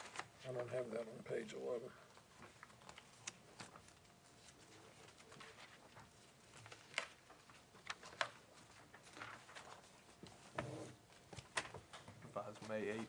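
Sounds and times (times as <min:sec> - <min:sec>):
paper pages turning: 0:00.0 - 0:00.8, 0:02.2 - 0:10.6.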